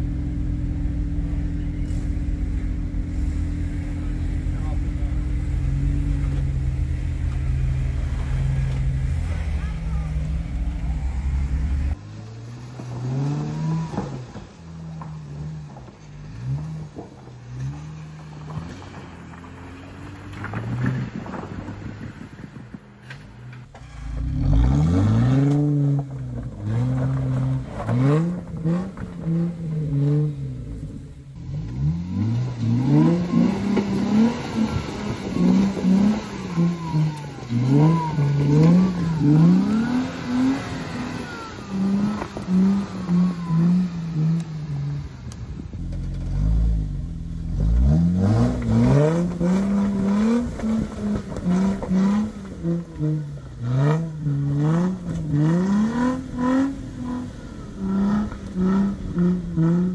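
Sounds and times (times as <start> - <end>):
engine revving in bursts: 31.5 - 45.4.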